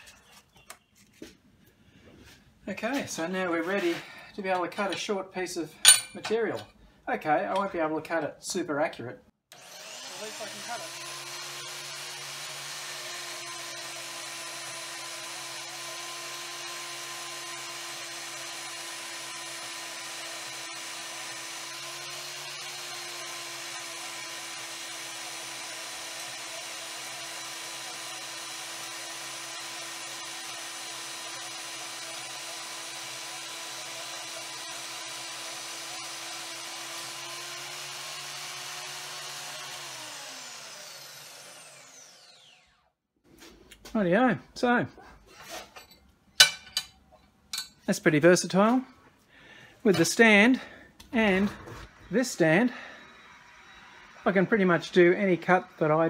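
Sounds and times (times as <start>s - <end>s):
bandsaw cutting metal: 9.5s - 42.9s, 49.9s - 56.0s
motor winding down whine: 39.9s - 42.8s, 51.3s - 54.9s.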